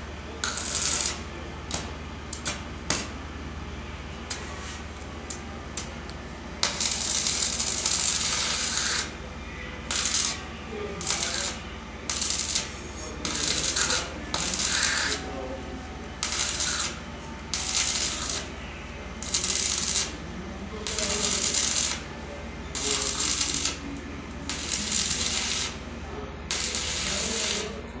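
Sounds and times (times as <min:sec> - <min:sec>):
welding arc crackling and sizzling: 0:00.4 - 0:03.2, 0:04.3 - 0:09.2, 0:09.9 - 0:15.3, 0:16.2 - 0:18.6, 0:19.2 - 0:20.2, 0:20.8 - 0:22.1, 0:22.8 - 0:25.8, 0:26.5 - 0:27.9.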